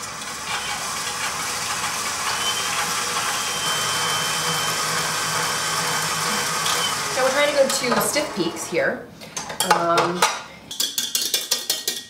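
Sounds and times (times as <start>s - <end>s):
stand mixer motor hum: 0.0s - 7.3s.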